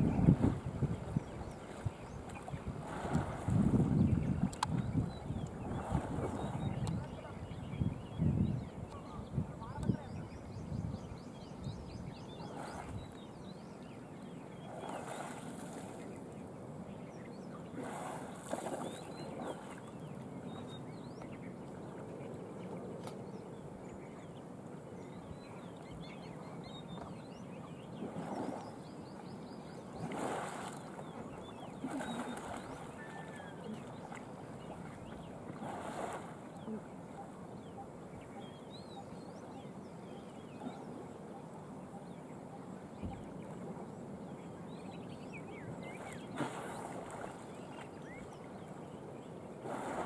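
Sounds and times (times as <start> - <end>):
water splashing: 0.0 - 7.4, 17.7 - 20.2, 30.0 - 37.2, 45.9 - 48.3
faint bird chirps: 25.0 - 35.3, 36.5 - 49.4.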